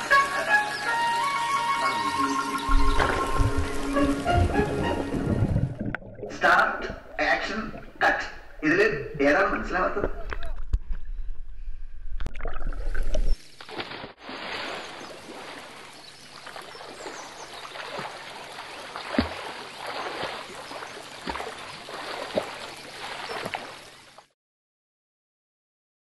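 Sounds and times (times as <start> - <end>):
water rushing and splashing: 0.0 - 8.6, 12.3 - 24.3
swimmer splashing through surface: 12.8 - 23.8.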